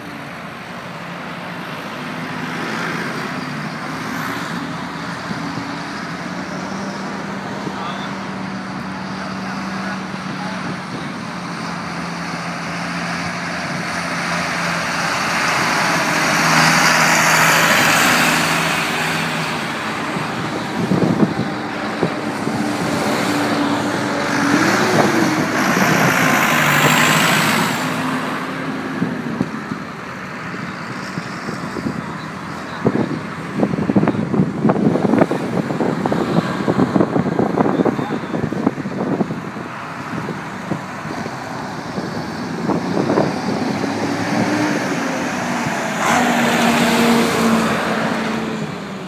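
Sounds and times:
diesel engines driving past: 0.0s - 49.0s.

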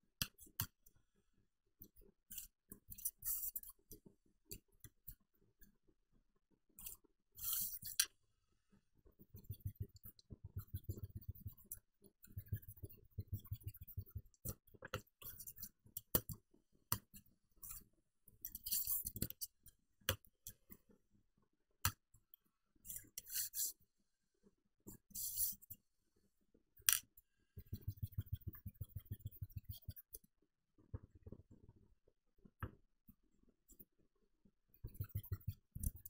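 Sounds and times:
pencil scratching on paper: 7.4s - 8.0s, 9.1s - 15.8s, 18.5s - 19.4s, 22.9s - 23.8s, 25.0s - 25.8s, 27.6s - 30.2s, 34.8s - 36.0s.

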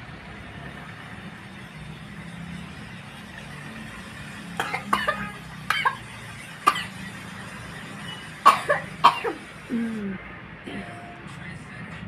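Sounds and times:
girl coughing: 4.6s - 6.0s, 8.5s - 10.2s.

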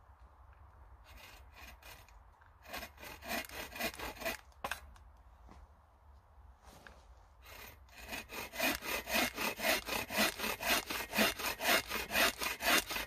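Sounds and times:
bow saw cutting a log: 1.1s - 4.8s, 7.4s - 13.0s.

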